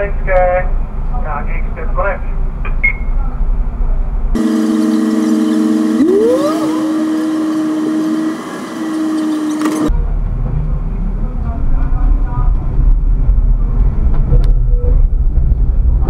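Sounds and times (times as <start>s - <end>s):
vehicle engine running: 4.3s - 14.2s
hum of held tones: 4.4s - 9.9s.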